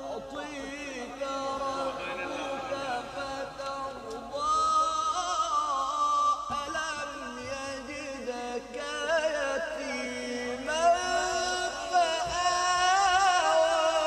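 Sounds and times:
man reciting melodically over loudspeaker: 0.0 - 14.0.

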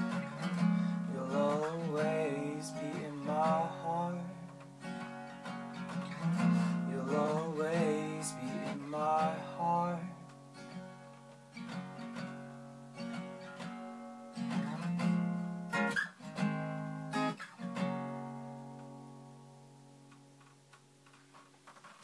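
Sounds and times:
acoustic guitar strumming: 0.0 - 22.0
wordless singing: 1.0 - 4.5, 6.7 - 10.2.

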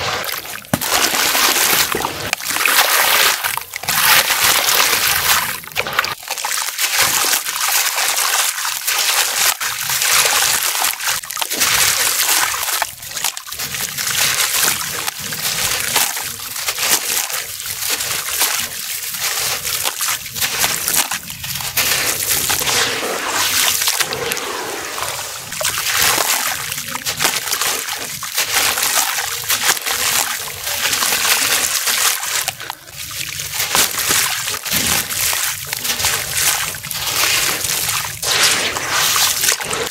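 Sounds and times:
crumbs splashing into water: 0.0 - 39.9
dry block crunching and crackling: 0.6 - 7.5, 25.5 - 39.9.

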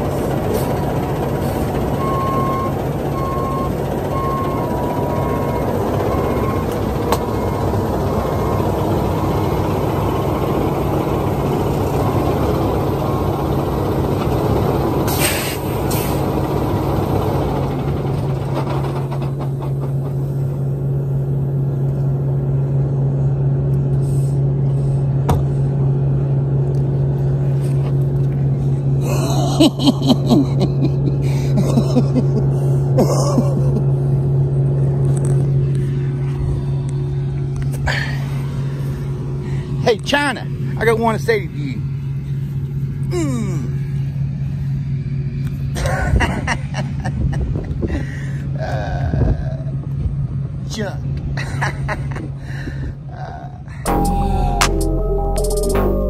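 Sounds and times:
diesel truck engine idling: 0.0 - 30.2
air brake hiss: 15.1 - 16.2.

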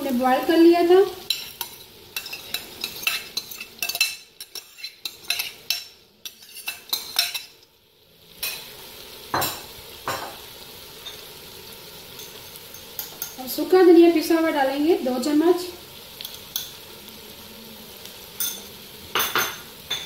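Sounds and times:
faint sizzle: 0.0 - 20.0
utensil scraping a steel pot: 1.3 - 7.5.

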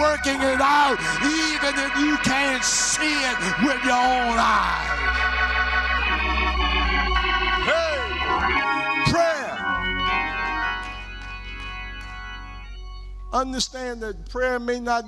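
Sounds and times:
person preaching: 0.0 - 5.4, 7.6 - 9.8, 13.3 - 15.0
church organ chords: 0.0 - 15.0
deep organ bass line: 0.0 - 15.0.

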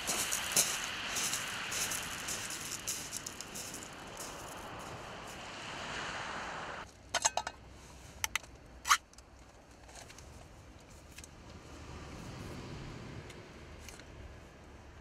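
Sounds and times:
steady hiss: 0.0 - 6.8.

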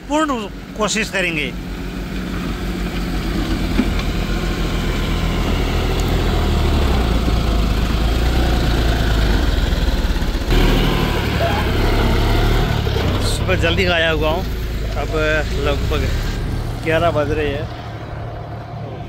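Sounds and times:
tractor diesel engine under load: 0.0 - 19.0
loader scooping soil: 1.8 - 17.1.

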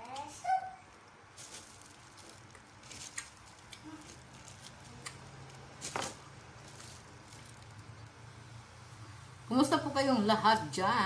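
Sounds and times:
person chewing wetly: 1.9 - 5.7.

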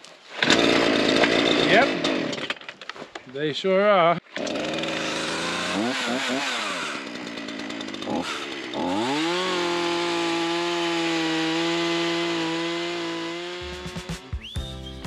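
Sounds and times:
chainsaw cutting log: 0.3 - 2.8, 4.3 - 14.3
music: 13.6 - 15.0.

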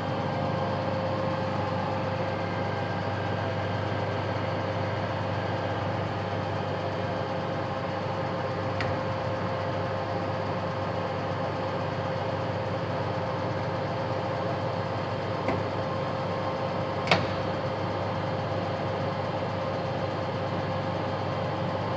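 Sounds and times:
lathe humming with whine: 0.0 - 21.9.

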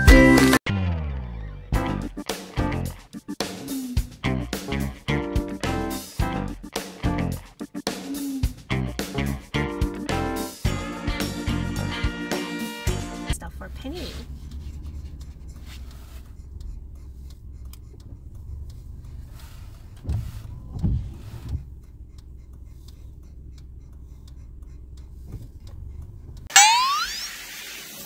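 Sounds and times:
low bumps: 13.3 - 22.1
car road rumble from inside: 13.3 - 26.5
loud rising sweep: 26.5 - 28.0.

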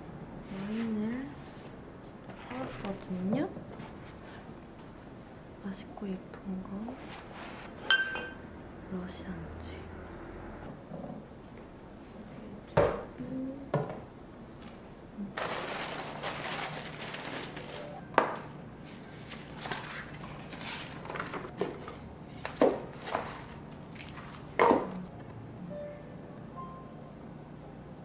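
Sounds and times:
objects knocking and clunking: 20.8 - 25.1.

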